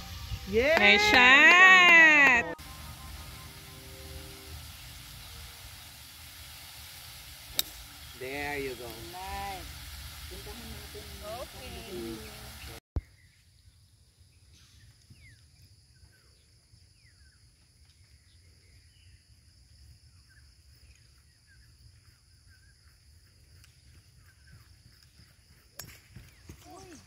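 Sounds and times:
high insect hum: 0.0 - 27.0
birds chirping: 10.3 - 13.4, 26.1 - 27.0.

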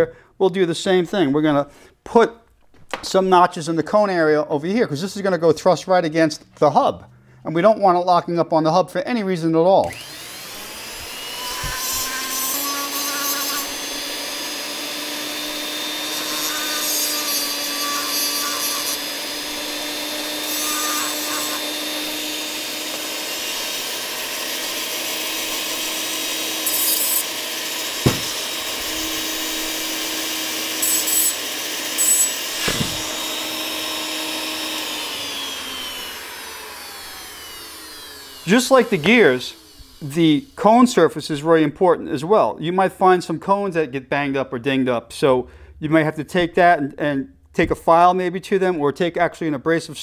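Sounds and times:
rotary grinder whining: 9.8 - 40.9
grinding bit scraping metal: 10.1 - 14.3
sharp knocks: 28.0 - 28.5, 32.6 - 33.1.

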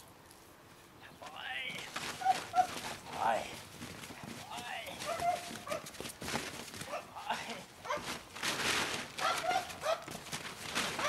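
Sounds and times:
scuffling on plastic tarp: 1.8 - 7.0, 7.8 - 11.0.

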